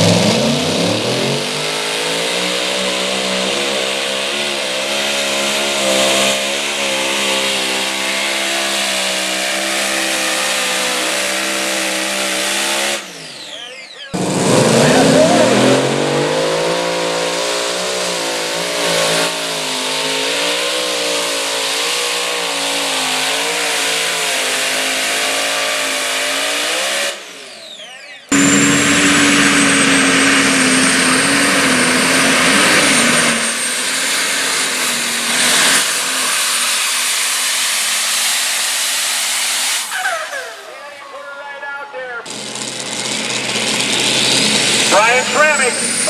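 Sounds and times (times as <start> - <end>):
diesel tractor at full throttle: 0.0 - 46.0
pulling tractor engine at full power: 0.0 - 46.0
high turbo whistle: 27.4 - 35.8.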